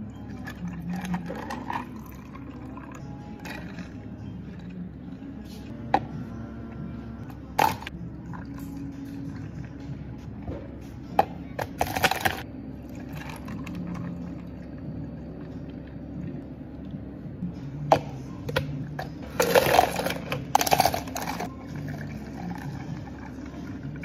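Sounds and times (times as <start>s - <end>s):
steady low hum: 0.0s - 24.0s
plastic cups knocking and rattling: 11.2s - 12.4s, 19.4s - 21.5s
ice cubes clattering into cup: 19.4s - 21.5s.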